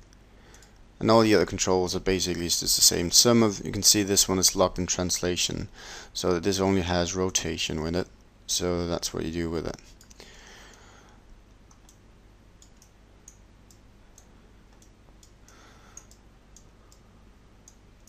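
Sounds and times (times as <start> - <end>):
low steady hum: 0.0 - 18.0
computer mouse clicks: 11.7 - 12.0, 12.6 - 17.0.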